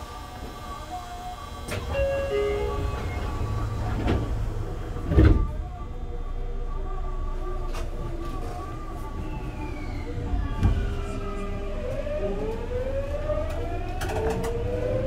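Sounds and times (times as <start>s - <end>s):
train doors sliding shut: 1.6s - 5.7s
short door warning tones: 1.7s - 4.3s.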